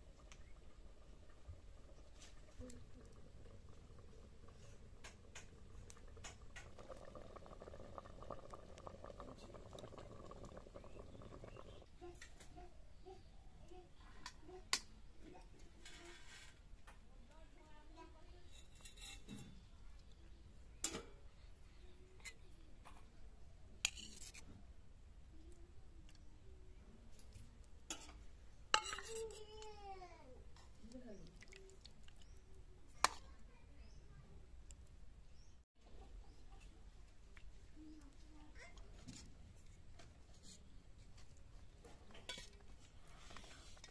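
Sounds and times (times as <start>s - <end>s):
food bubbling and popping: 0.0s - 11.9s, 30.5s - 33.2s, 35.9s - 43.9s
metal ladle clinking on plates: 28.8s - 29.4s.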